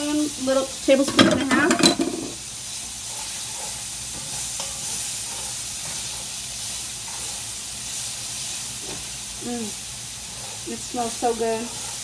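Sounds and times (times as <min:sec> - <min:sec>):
food sizzling in a skillet: 0:00.0 - 0:12.0
utensil scraping a pan: 0:00.9 - 0:02.4, 0:03.0 - 0:06.4, 0:07.0 - 0:07.5, 0:10.2 - 0:12.0.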